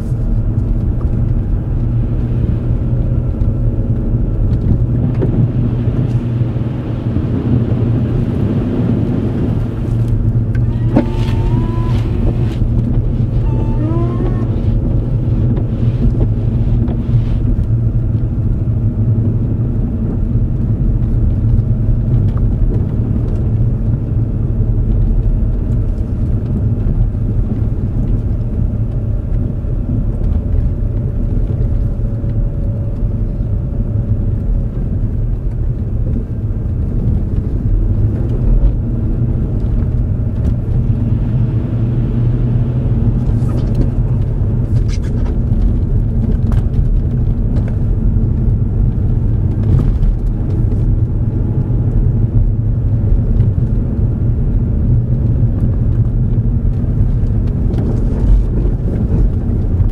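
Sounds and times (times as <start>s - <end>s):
car engine and tyres rumbling: 0.0s - 59.9s
brief rising tones: 10.6s - 12.7s, 13.3s - 14.6s.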